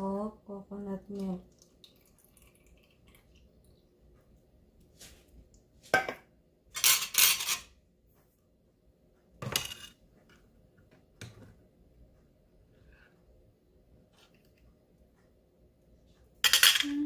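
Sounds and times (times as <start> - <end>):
utensils clattering on cookware: 6.8 - 7.7, 16.4 - 17.0.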